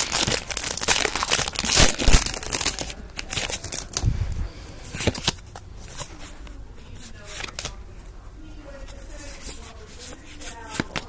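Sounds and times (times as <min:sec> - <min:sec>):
foil wrapper crinkling and tearing: 0:00.0 - 0:04.1
cards clicking and rustling: 0:04.8 - 0:07.8, 0:08.8 - 0:11.0.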